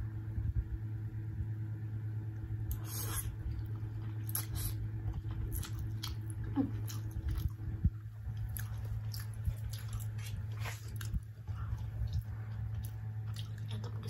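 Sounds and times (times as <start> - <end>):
steady low hum: 0.0 - 14.0
wet chewing and lip smacks: 2.7 - 7.6, 8.3 - 14.0.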